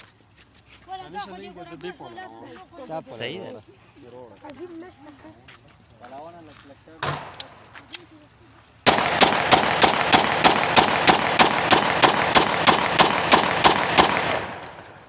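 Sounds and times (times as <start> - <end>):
pistol shots: 7.0 - 7.7, 8.9 - 15.0.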